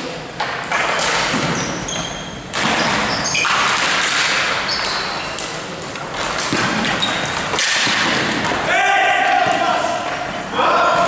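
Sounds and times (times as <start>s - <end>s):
steady noisy background: 0.0s - 11.0s
short high squeaks: 1.5s - 3.6s, 4.6s - 5.4s.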